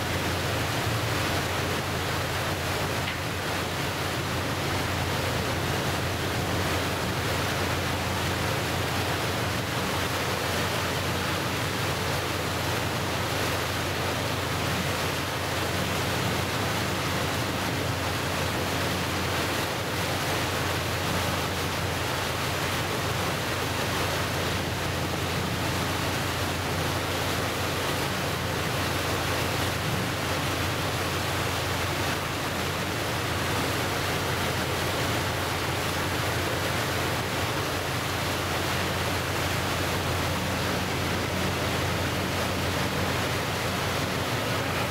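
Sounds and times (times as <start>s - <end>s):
waves washing against shore: 0.0s - 44.9s.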